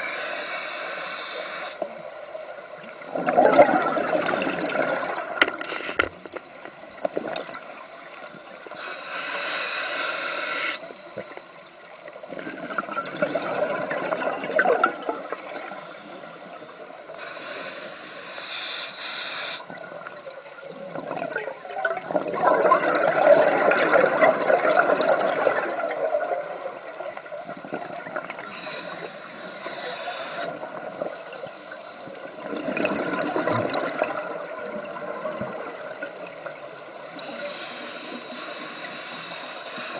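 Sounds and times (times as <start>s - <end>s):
regulator hissing inhalations: 0.0s - 2.0s, 8.0s - 11.6s, 15.5s - 19.8s, 28.4s - 32.3s, 37.0s - 39.9s
gurgle of exhaled bubbles: 3.0s - 5.6s, 12.3s - 15.7s, 20.6s - 28.6s, 32.2s - 37.4s.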